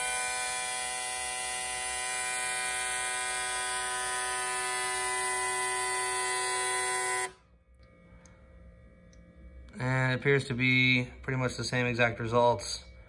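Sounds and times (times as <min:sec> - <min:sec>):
fuel injectors pulsing: 0:00.0 - 0:07.4
steady electric buzz: 0:00.0 - 0:13.0.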